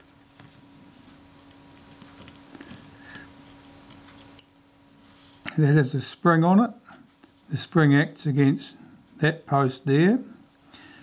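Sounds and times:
faint steady hum: 0.0s - 11.0s
tweezers clicking on metal parts: 1.4s - 4.6s.

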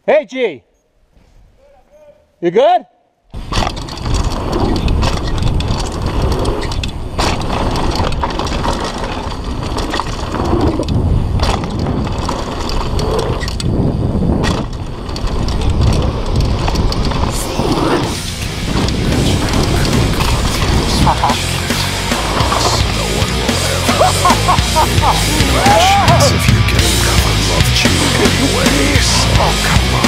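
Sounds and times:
bike frame and chain clattering: 3.3s - 17.6s
wind rumble on microphone: 3.3s - 21.4s
bike tyres rolling over dirt: 3.3s - 30.0s.

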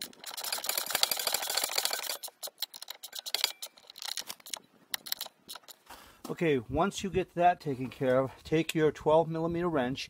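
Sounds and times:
ratchet wrench clicking: 0.0s - 5.8s.

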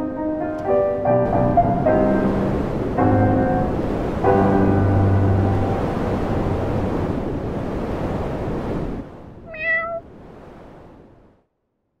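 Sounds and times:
loud rushing noise: 1.2s - 8.7s
cat meow: 9.5s - 10.0s.

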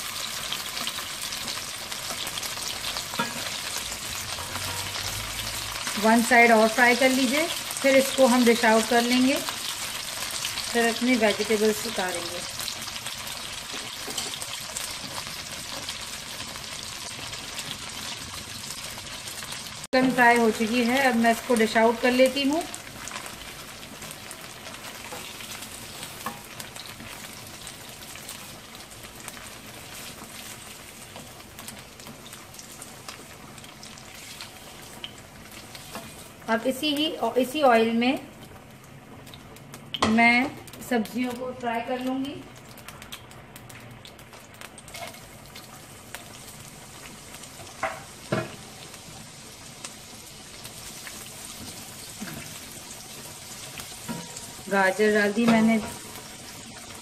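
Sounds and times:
hot oil sizzling: 0.0s - 57.0s
spatula stirring in wok: 22.8s - 36.5s, 50.8s - 54.7s.

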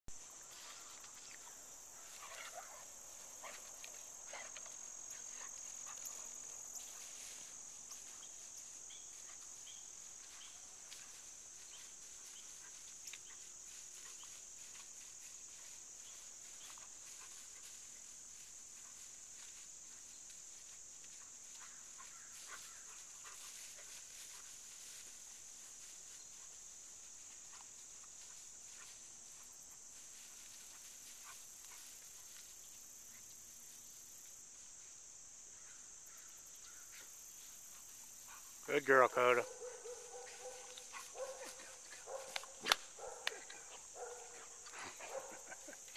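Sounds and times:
insects chirping: 0.1s - 45.9s
faint rustles: 0.2s - 34.8s.

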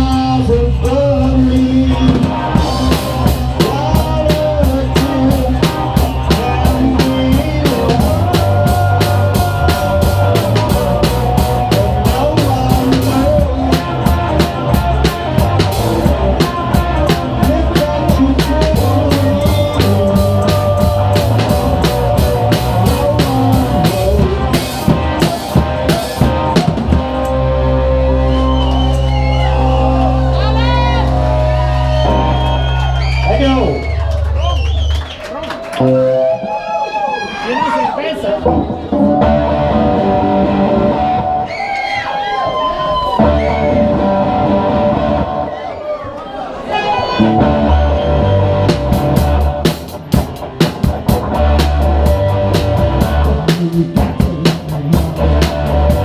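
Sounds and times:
loud drums and cymbals: 0.0s - 27.3s, 48.5s - 56.0s
live rock band playing: 0.0s - 45.7s, 46.5s - 56.0s.

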